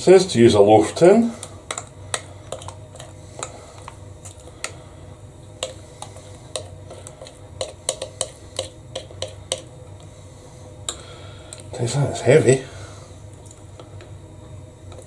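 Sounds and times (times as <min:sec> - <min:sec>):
spoon scraping glass bowl: 0:05.6 - 0:09.7.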